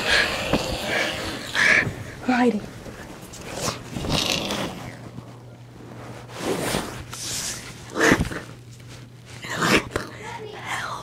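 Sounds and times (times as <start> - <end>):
faint low hum: 0.0 - 11.0
rustling and scraping handling noise: 2.4 - 9.6.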